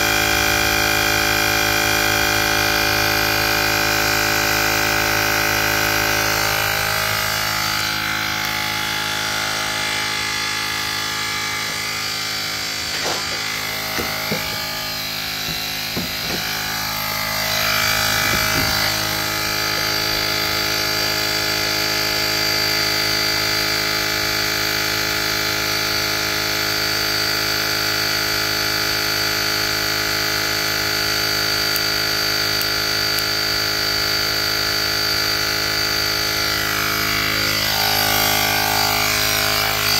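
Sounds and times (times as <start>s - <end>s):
air compressor whining: 0.0s - 39.9s.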